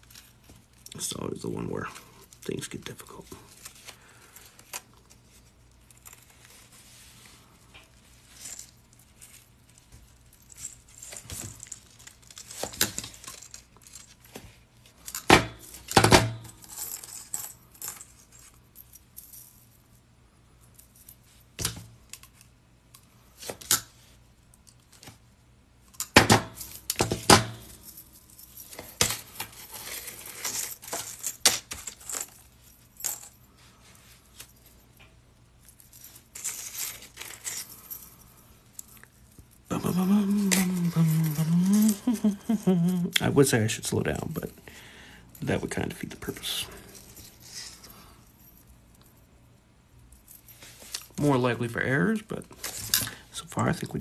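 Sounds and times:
metal rings clinking: 0:07.6 - 0:19.8, 0:25.9 - 0:43.3.

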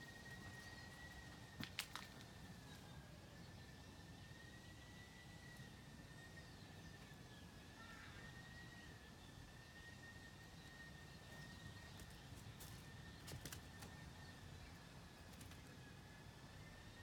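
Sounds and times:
faint high whine: 0:00.0 - 0:17.0
clicks and crackles in dry leaves: 0:00.3 - 0:02.4, 0:11.9 - 0:14.1.

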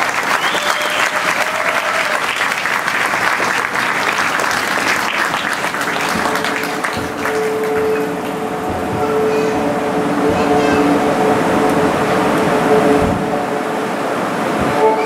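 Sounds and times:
audience applauding: 0:00.0 - 0:09.0
steady held note: 0:06.1 - 0:15.0.

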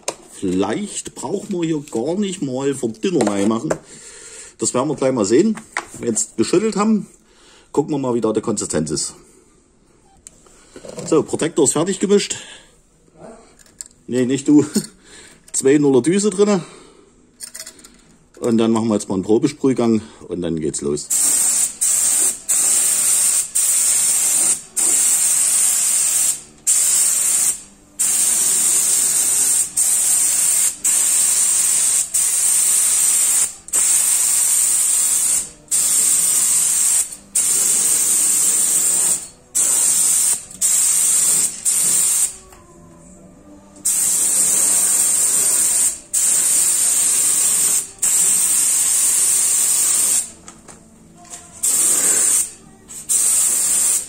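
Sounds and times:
spray gun hissing: 0:21.1 - 0:42.3, 0:43.9 - 0:50.3, 0:51.6 - 0:52.5.

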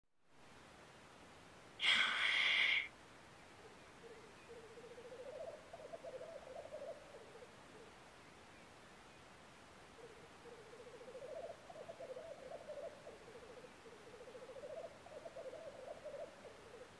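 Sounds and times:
grouse wheezy hiss: 0:01.8 - 0:02.9.

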